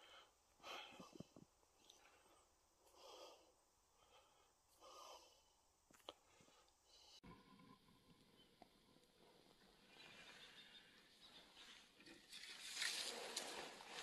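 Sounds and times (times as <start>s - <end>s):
faint breaths: 0.0s - 7.7s.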